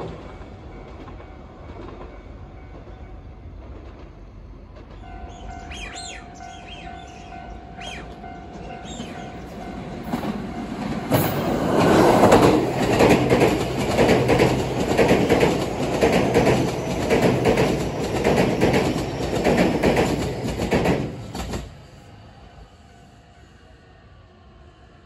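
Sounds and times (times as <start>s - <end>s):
electric train passing: 0.0s - 25.0s.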